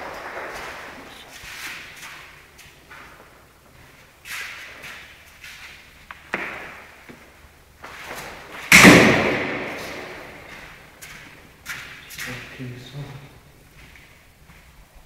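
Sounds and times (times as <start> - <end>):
sharp knocks in tiled room: 6.3 - 7.2, 8.7 - 12.0.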